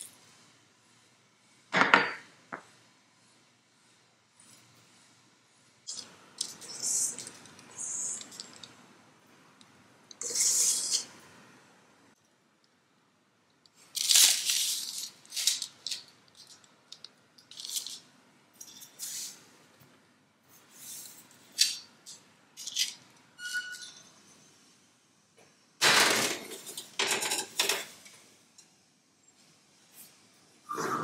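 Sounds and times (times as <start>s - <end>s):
paper rustling: 13.9s - 16.6s
spatula squeak: 23.4s - 24.0s.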